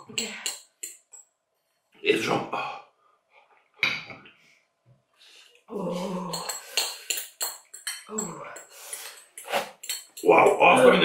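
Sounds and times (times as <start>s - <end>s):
glassware clinking: 0.0s - 1.2s, 6.1s - 11.0s
person groaning: 5.7s - 6.6s.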